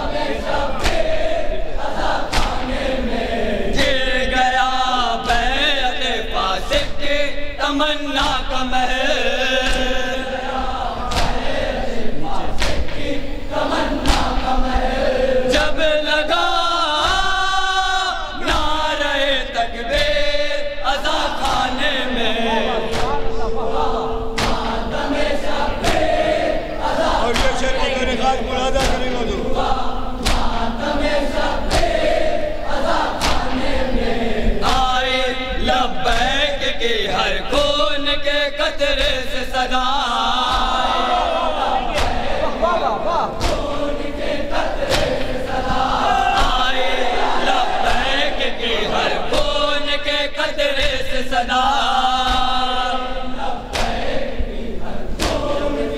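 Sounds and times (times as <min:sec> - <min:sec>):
men chanting a lament: 0:00.0 - 0:55.9
chest-beating slaps: 0:00.7 - 0:02.9, 0:11.0 - 0:11.6, 0:12.3 - 0:13.1, 0:14.0 - 0:14.6, 0:22.8 - 0:28.0, 0:28.6 - 0:35.0, 0:41.7 - 0:49.6, 0:53.7 - 0:54.2, 0:55.1 - 0:55.9
chest-beating thuds: 0:22.8 - 0:27.9, 0:28.6 - 0:29.4.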